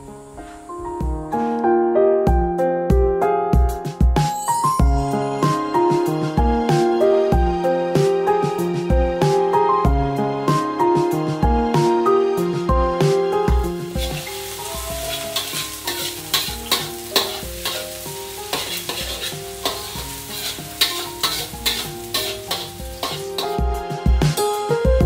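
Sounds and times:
food sizzling in a pan: 13.5s - 24.0s
spatula scraping a pan: 14.0s - 23.6s.

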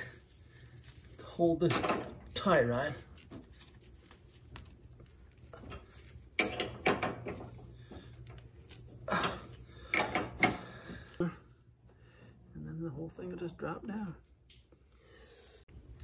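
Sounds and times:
metal wrenches clinking and scraping: 1.4s - 3.4s, 5.4s - 7.7s, 8.6s - 10.7s.

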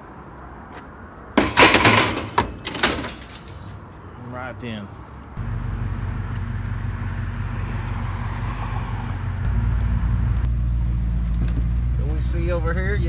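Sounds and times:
road noise inside cab: 0.0s - 13.0s
truck engine: 5.4s - 13.0s.

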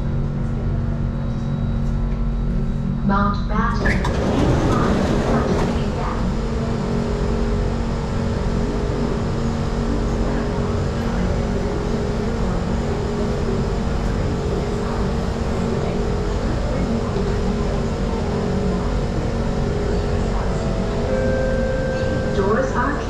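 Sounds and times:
train equipment hum: 0.0s - 23.0s
train doors sliding open: 3.7s - 6.8s.

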